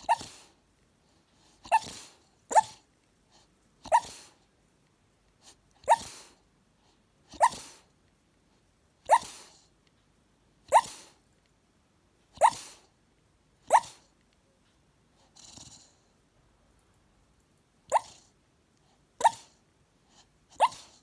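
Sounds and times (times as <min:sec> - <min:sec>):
puppy barking in sleep: 0:00.0 - 0:00.6, 0:01.4 - 0:04.4, 0:05.4 - 0:06.4, 0:07.2 - 0:07.9, 0:09.0 - 0:09.7, 0:10.6 - 0:11.2, 0:12.3 - 0:12.9, 0:13.6 - 0:14.1, 0:17.9 - 0:21.0.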